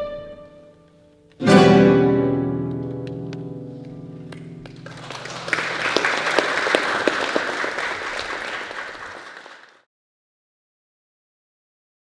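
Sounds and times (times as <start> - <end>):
guitar ensemble chord: 1.4 - 5.9
audience applause: 4.3 - 9.9.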